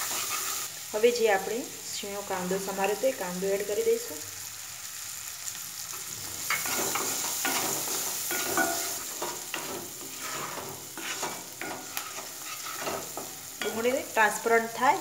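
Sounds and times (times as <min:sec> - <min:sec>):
wooden spatula scraping a pan: 0:00.0 - 0:00.7, 0:06.4 - 0:13.9
onion sizzling in hot oil: 0:00.0 - 0:15.0.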